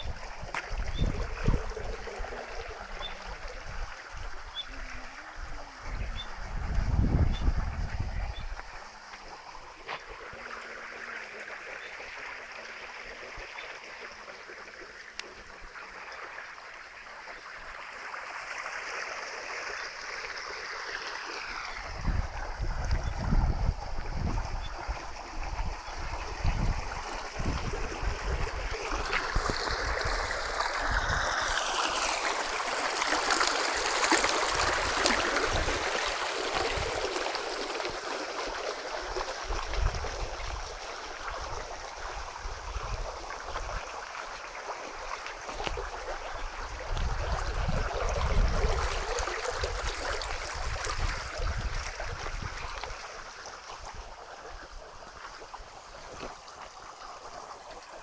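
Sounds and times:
water rushing along channel: 0.0s - 58.0s
wind thumps on microphone: 5.9s - 8.7s, 21.9s - 24.7s.

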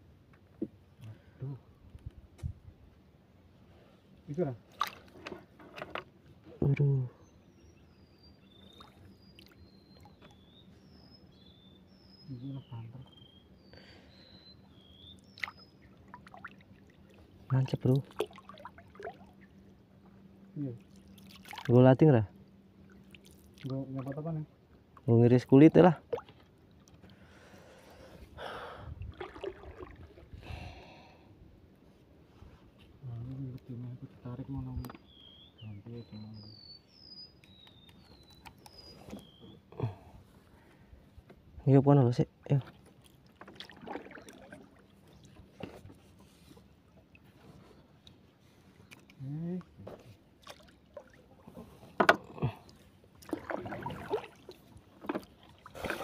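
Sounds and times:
faint low voice: 33.0s - 34.8s
knocks on wooden canoe: 52.0s - 52.2s.

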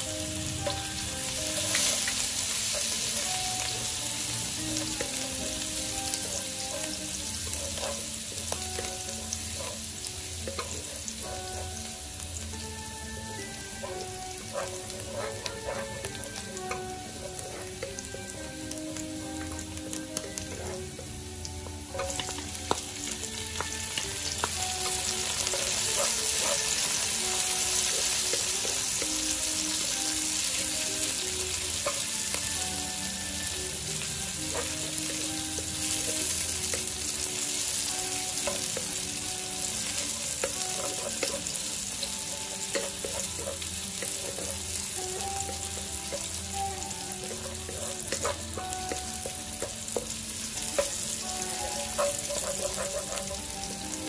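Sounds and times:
shallots sizzling in hot oil: 0.0s - 54.0s
wooden spatula scraping a wok: 13.1s - 18.4s, 25.2s - 28.8s, 39.6s - 54.0s.

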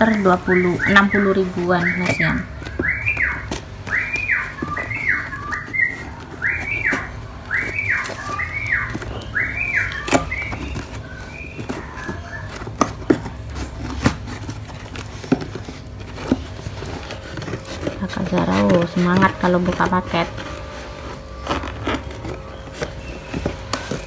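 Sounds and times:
scissors cutting packing tape: 0.0s - 24.0s
high whistled tone: 0.4s - 12.5s.

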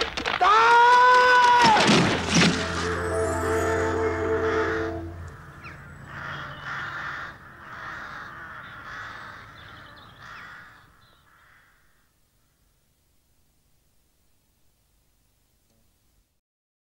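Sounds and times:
crow cawing: 4.3s - 12.6s.

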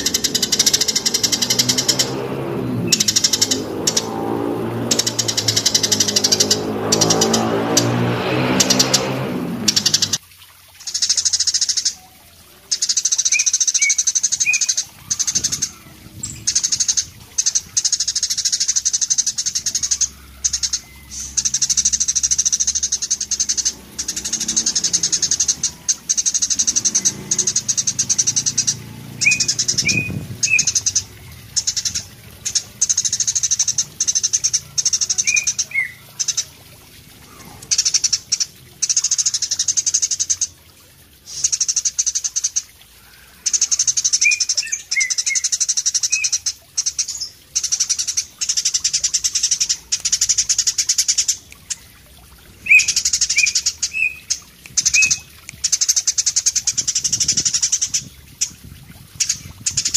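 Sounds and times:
sparrow high-pitched trilling song: 12.7s - 36.5s, 52.6s - 58.6s
low bird chirps: 12.7s - 58.6s.

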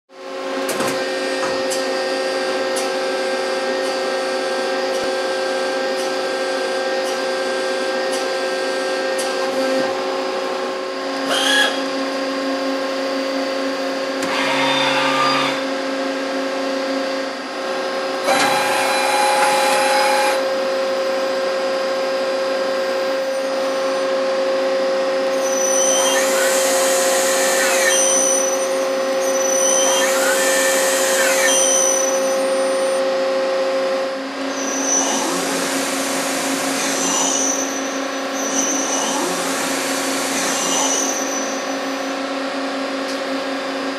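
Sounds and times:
lathe humming: 23.5s - 33.2s.

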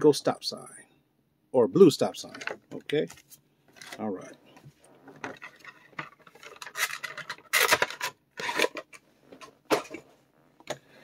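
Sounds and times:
packaging rubbing and scraping: 5.0s - 9.0s.

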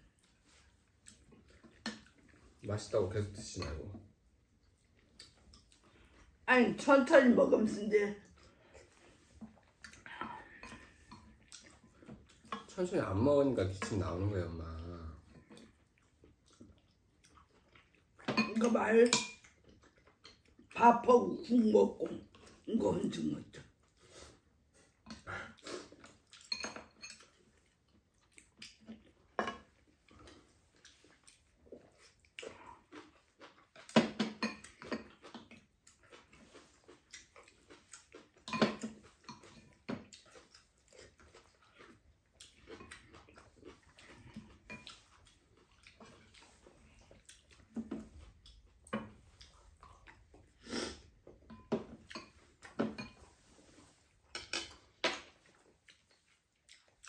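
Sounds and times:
people chewing: 0.0s - 6.8s, 8.1s - 20.8s, 21.4s - 57.0s
spoons scraping and clinking bowls: 18.3s - 19.4s, 26.4s - 27.4s, 51.5s - 53.6s.

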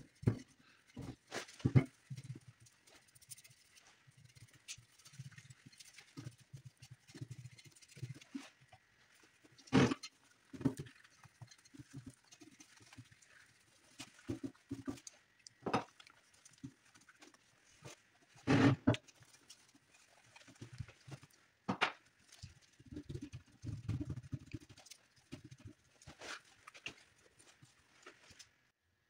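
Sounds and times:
paintbrush strokes on metal: 0.0s - 21.4s.

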